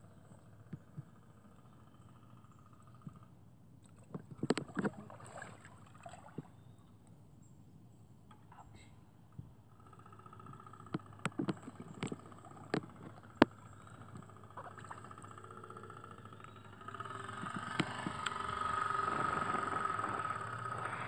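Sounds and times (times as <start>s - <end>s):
sharp clicks: 10.5s - 15.2s.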